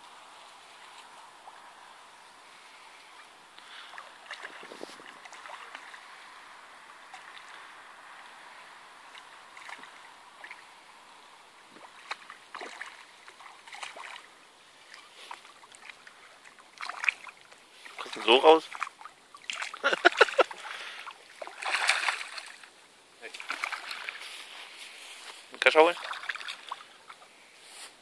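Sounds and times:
steady background hiss: 0.0s - 28.0s
fish splashing at water surface: 3.6s - 8.4s, 9.0s - 10.8s, 11.6s - 24.4s, 25.9s - 27.2s.

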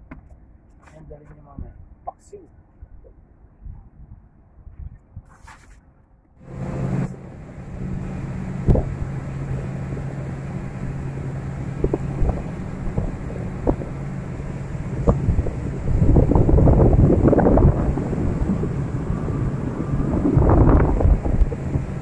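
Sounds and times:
motorboat engine running: 6.4s - 22.0s
wind rushing over microphone: 6.4s - 22.0s.

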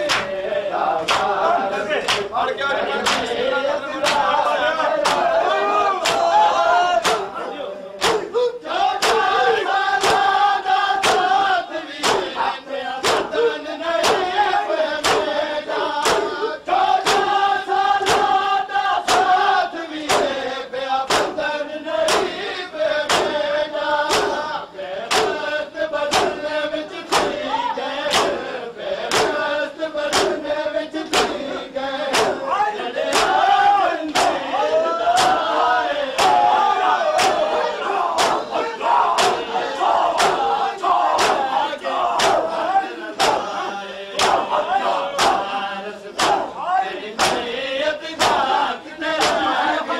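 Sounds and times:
hands slapping bare chests: 0.0s - 0.4s, 1.0s - 1.4s, 2.0s - 2.3s, 3.0s - 3.4s, 4.0s - 4.3s, 5.0s - 5.3s, 6.0s - 6.3s, 7.0s - 7.3s, 8.0s - 8.3s, 9.0s - 9.3s, 10.0s - 10.4s, 11.0s - 11.4s, 12.0s - 12.3s, 13.0s - 13.3s, 14.0s - 14.3s, 15.0s - 15.3s, 16.0s - 16.4s, 17.0s - 17.4s, 18.0s - 18.4s, 19.1s - 19.4s, 20.0s - 20.4s, 21.1s - 21.4s, 22.1s - 22.4s, 23.1s - 23.4s, 24.1s - 24.4s, 25.1s - 25.4s, 26.1s - 26.4s, 27.1s - 27.4s, 28.1s - 28.4s, 29.1s - 29.4s, 30.1s - 30.4s, 31.1s - 31.4s, 32.1s - 32.4s, 33.1s - 33.4s, 34.1s - 34.4s, 35.2s - 35.5s, 36.2s - 36.5s, 37.2s - 37.5s, 38.2s - 38.4s, 39.2s - 39.4s, 40.2s - 40.4s, 41.2s - 41.5s, 42.2s - 42.5s, 43.2s - 43.5s, 44.2s - 44.4s, 45.2s - 45.5s, 46.2s - 46.4s, 47.2s - 47.5s, 48.2s - 48.6s, 49.2s - 49.6s
men chanting together: 0.0s - 49.9s.

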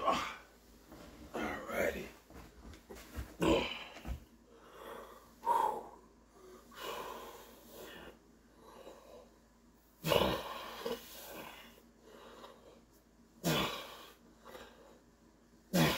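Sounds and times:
man breathing hard: 3.5s - 9.4s, 10.4s - 15.2s.

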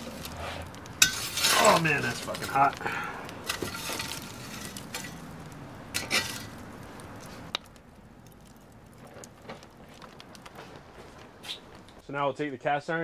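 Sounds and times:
metal peel scraping oven floor: 0.0s - 2.8s, 3.4s - 5.3s, 5.9s - 6.6s
charcoal breaking clinks: 0.0s - 6.7s.

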